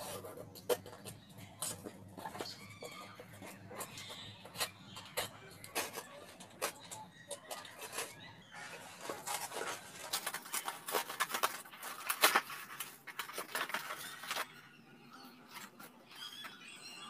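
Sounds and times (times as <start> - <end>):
cardboard scraping and tearing: 7.5 - 14.6.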